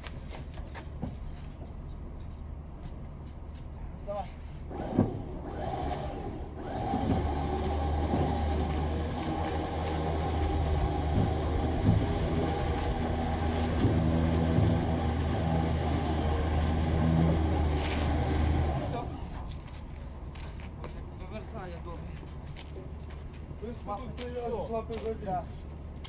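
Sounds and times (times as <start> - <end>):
winch droning: 4.7 - 19.5
knocks and creaks on ramps: 4.7 - 19.9.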